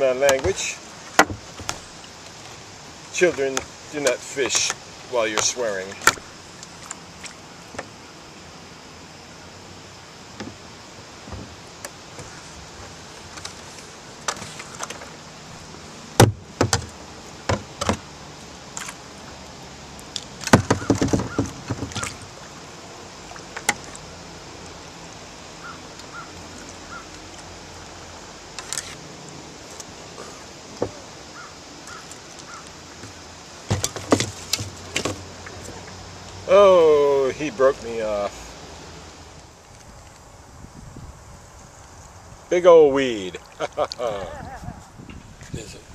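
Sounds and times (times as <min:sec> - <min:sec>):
faint steady background noise: 0:00.0 - 0:45.9
fishing gear knocks and clicks: 0:20.2 - 0:22.2, 0:33.0 - 0:35.9.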